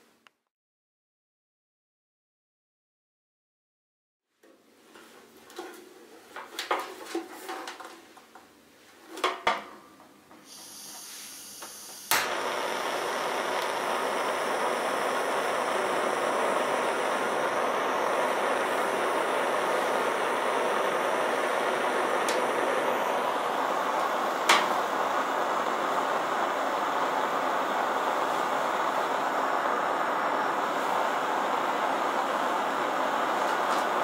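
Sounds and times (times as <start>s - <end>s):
gas burner rushing hiss: 10.4s - 34.0s
gas hissing: 10.4s - 34.0s
igniter click: 11.6s - 23.2s.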